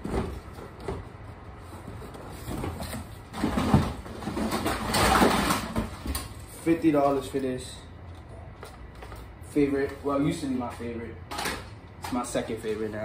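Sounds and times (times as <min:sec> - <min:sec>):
plastic toys rustling and clattering: 0:01.9 - 0:06.5.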